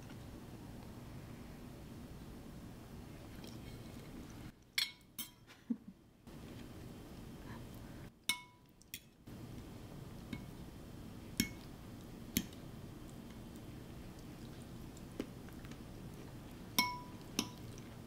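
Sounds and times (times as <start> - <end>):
fork clinking on ceramic plate: 4.8 - 5.5.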